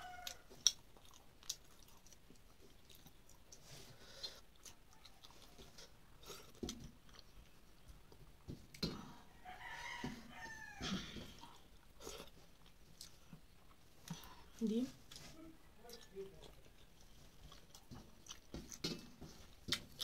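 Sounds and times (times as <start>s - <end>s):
rooster crowing: 0.0s - 0.5s, 9.3s - 11.3s
chewing: 0.0s - 20.0s
fingers mixing food on metal plate: 4.6s - 20.0s.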